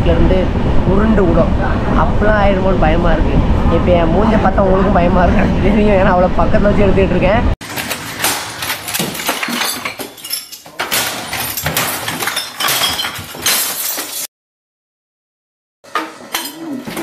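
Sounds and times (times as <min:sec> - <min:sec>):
glass bottles clinking: 0:07.6 - 0:14.3, 0:15.9 - 0:17.0
objects crashing and clattering: 0:07.6 - 0:14.3.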